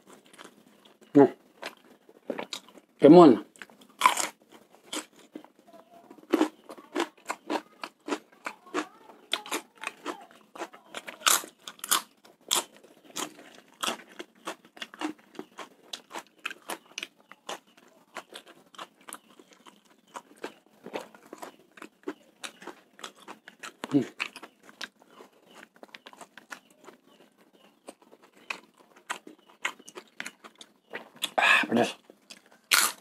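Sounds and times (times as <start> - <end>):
close chewing with sharp crunches: 0.0 - 33.0.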